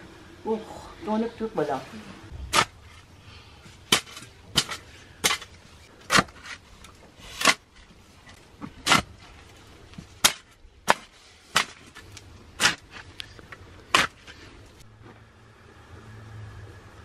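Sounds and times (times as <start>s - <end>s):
garden hoe chopping into soil: 2.5s - 3.0s, 7.3s - 7.7s, 8.6s - 9.2s, 10.2s - 12.0s, 12.6s - 13.1s, 13.9s - 14.3s.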